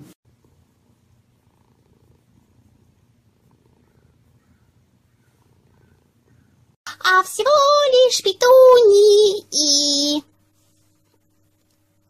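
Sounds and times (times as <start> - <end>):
cat purring: 0.0 - 6.8.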